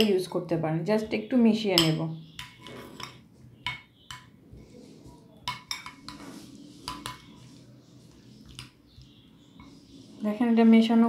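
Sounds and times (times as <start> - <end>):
soft stirring of mixture: 0.0 - 11.0
spoon clinking against bowl: 1.8 - 4.3, 5.4 - 6.2, 6.8 - 7.5.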